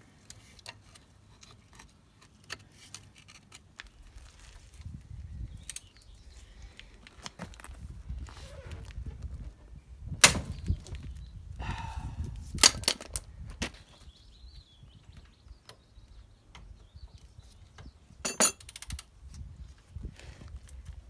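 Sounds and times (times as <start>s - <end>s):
metal tools clanking: 18.2s - 18.8s.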